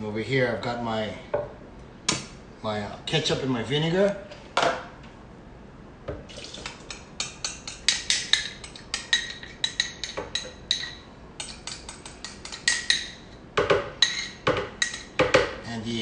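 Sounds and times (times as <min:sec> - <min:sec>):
spoon clinking ceramic bowl: 0:06.9 - 0:13.2.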